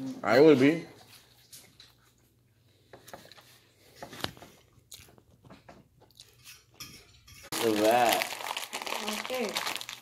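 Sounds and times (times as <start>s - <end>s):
person chewing food crunchily: 1.4s - 6.7s.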